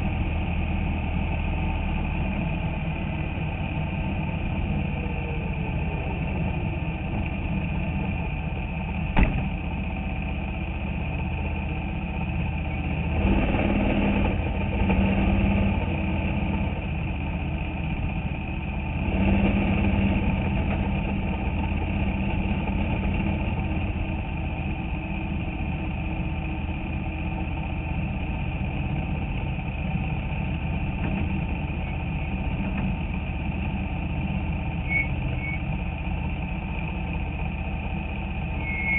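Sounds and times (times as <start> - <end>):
race car engine running: 0.0 - 38.9.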